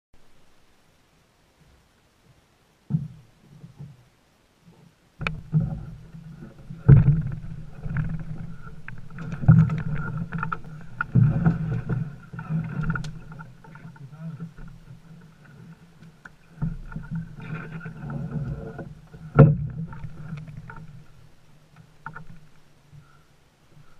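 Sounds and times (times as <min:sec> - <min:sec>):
low rumbling handling noise: 0:02.8 - 0:23.2
canoe knocks and thumps: 0:02.9 - 0:04.0, 0:05.2 - 0:15.2, 0:16.3 - 0:21.0.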